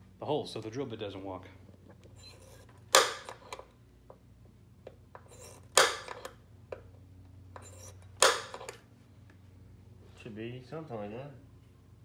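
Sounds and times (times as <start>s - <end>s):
center punch striking sheet metal: 3.0s - 3.3s, 5.8s - 6.2s, 8.2s - 8.7s.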